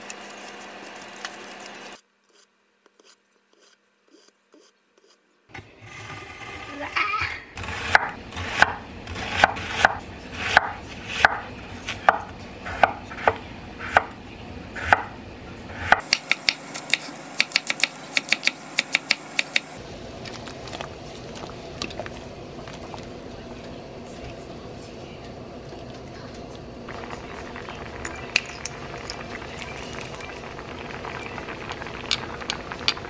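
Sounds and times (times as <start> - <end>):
broth boiling in pan: 18.6 - 33.0.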